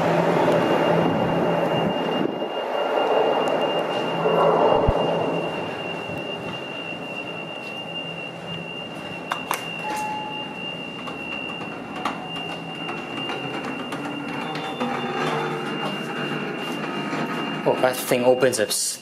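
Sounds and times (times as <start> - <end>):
short lower beep: 0.0 - 19.0
steady high-pitched alarm tone: 0.0 - 19.0.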